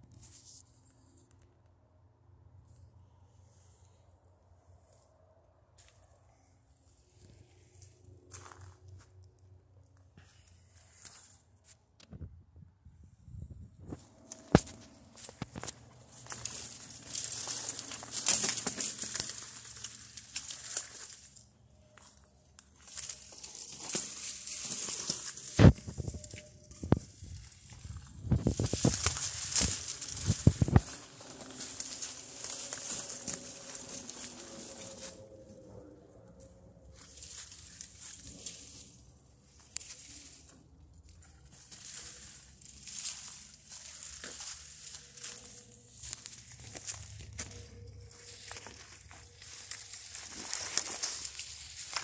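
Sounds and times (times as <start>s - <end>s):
dry reeds crackling underfoot: 6.9s - 11.4s, 13.8s - 52.0s
sharp crack of reeds: 26.8s - 35.2s.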